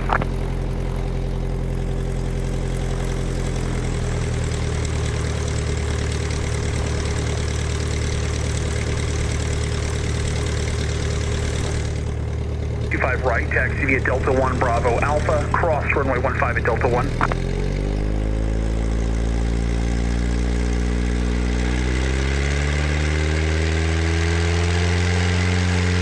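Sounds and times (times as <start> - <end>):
light aircraft engine and propeller: 0.0 - 26.0.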